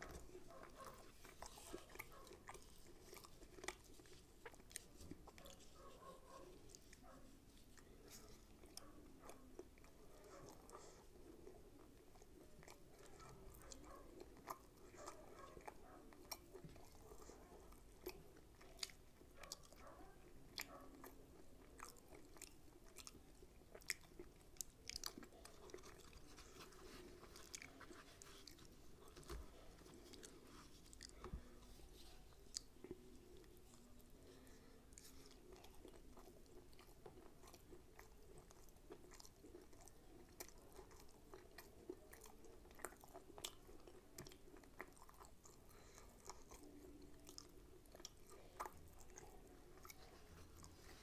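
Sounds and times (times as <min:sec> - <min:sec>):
close-up chewing: 0:00.0 - 0:51.0.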